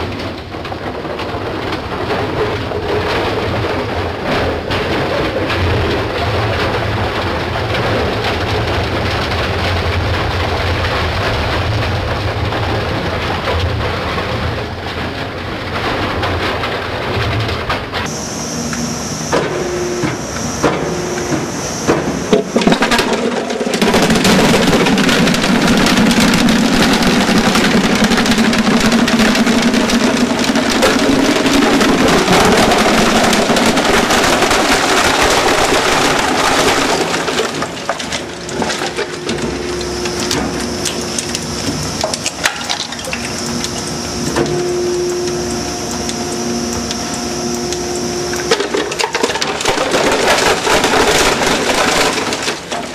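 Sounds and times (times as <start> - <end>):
shredder rotor whining: 18.1 - 52.9
plastic crunching and cracking: 22.1 - 52.9.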